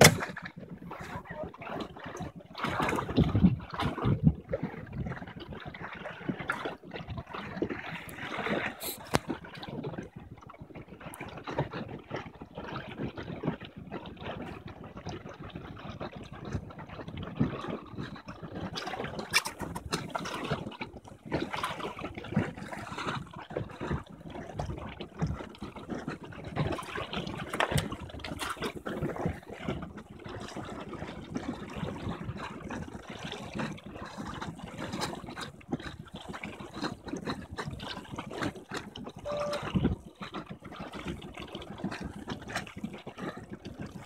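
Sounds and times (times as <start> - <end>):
water splashing and sloshing: 0.0 - 44.0.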